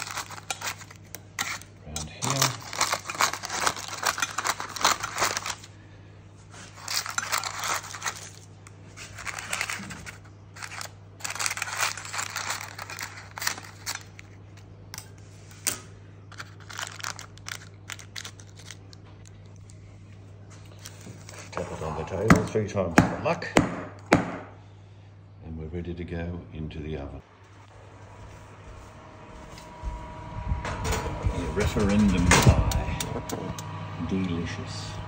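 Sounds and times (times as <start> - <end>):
scissors snipping paper: 0.0 - 5.7, 9.2 - 14.3
low hum: 23.9 - 35.0.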